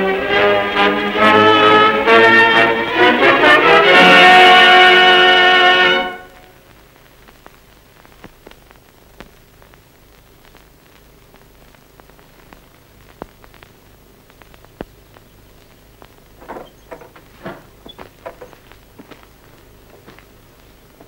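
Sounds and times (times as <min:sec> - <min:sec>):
film soundtrack hiss: 0:00.0 - 0:21.0
clicks and crackles: 0:06.7 - 0:21.0.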